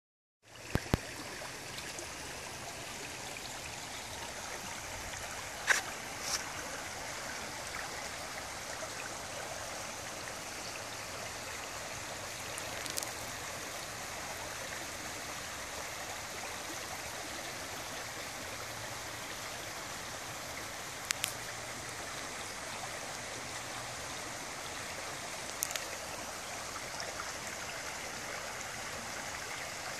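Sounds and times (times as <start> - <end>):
water rushing: 0.6 - 16.2.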